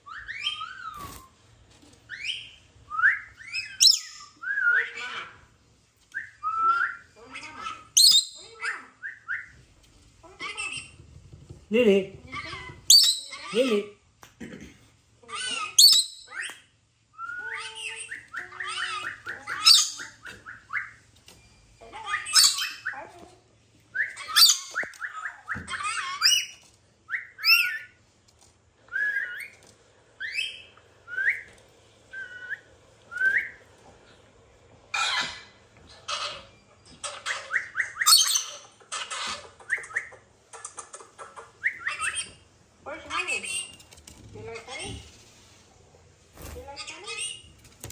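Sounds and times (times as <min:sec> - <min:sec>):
parrot squawking: 0:03.4 - 0:05.5, 0:06.6 - 0:09.3, 0:12.9 - 0:13.8, 0:15.3 - 0:16.5, 0:17.4 - 0:21.0, 0:21.8 - 0:23.1, 0:24.0 - 0:28.0, 0:34.9 - 0:43.7.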